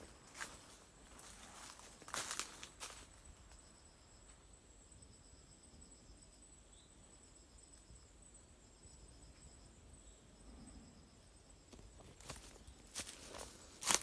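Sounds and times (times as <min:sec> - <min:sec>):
footstep on forest floor: 0:00.0 - 0:03.6, 0:11.7 - 0:14.0
insects chirping: 0:00.0 - 0:14.0.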